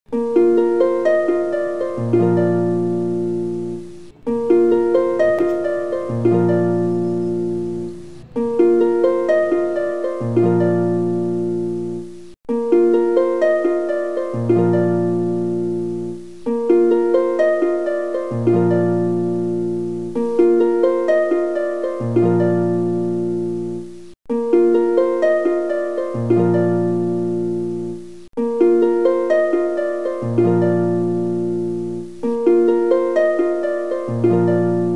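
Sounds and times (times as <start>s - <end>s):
plucked string notes: 0.1s - 12.0s
low bass line: 3.3s - 11.2s.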